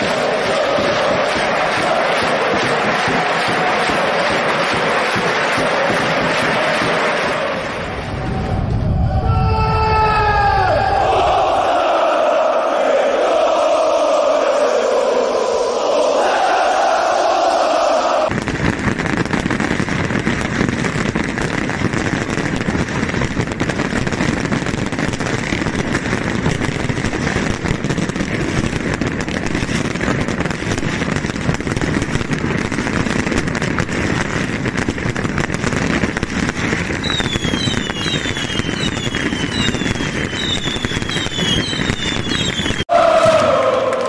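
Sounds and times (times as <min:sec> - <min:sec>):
firecrackers crackling bangs: 0:00.0 - 0:09.0, 0:18.2 - 0:44.0
falling firework whistles: 0:36.4 - 0:43.5.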